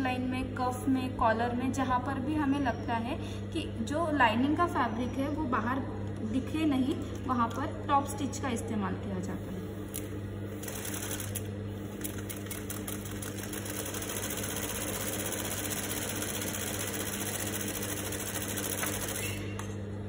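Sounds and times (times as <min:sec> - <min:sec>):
sewing machine running: 0:10.5 - 0:19.5.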